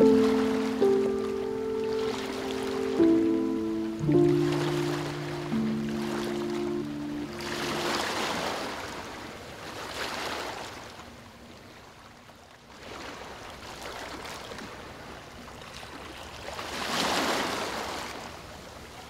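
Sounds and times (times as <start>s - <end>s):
surf breaking on a beach: 0.0s - 10.6s.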